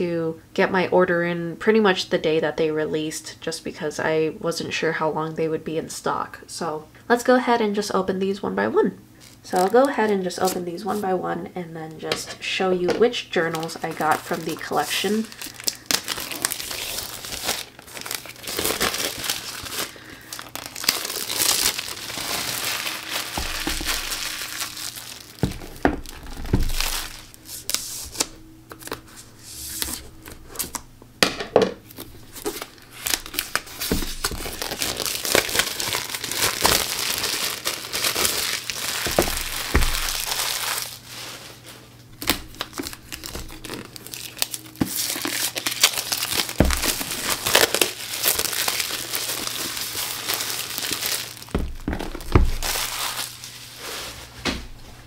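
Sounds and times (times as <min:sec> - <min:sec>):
shrink wrap crinkling and tearing: 0:09.2 - 0:11.1, 0:13.3 - 0:30.9, 0:31.9 - 0:54.1.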